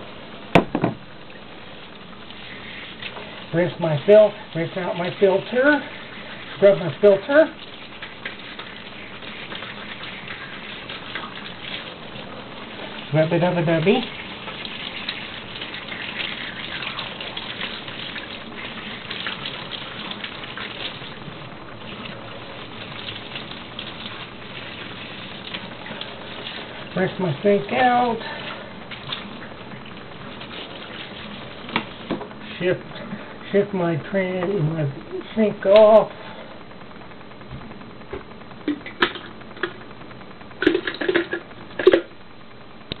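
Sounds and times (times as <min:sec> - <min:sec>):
clicks and knocks at kitchen sink: 0:00.6 - 0:01.0
tap water splashing on metal: 0:31.7 - 0:32.3.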